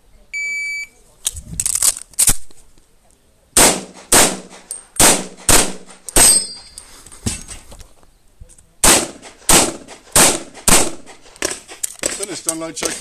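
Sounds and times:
pistol shots: 3.6s - 6.6s, 8.8s - 12.2s
steel target ringing: 6.2s - 6.8s.

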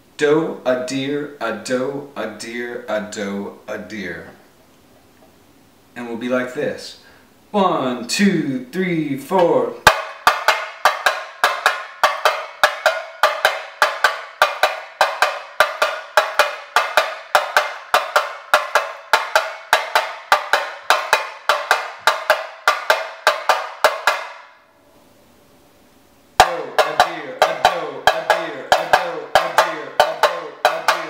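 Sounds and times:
tamborim struck with a stick: 9.8s - 24.6s, 26.4s - 31.0s.

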